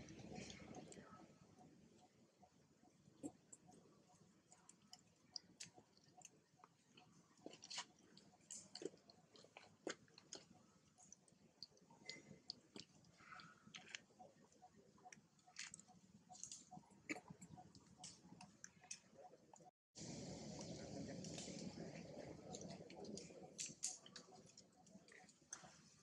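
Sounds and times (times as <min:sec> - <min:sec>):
monkey chewing corn kernels: 0:04.5 - 0:14.2.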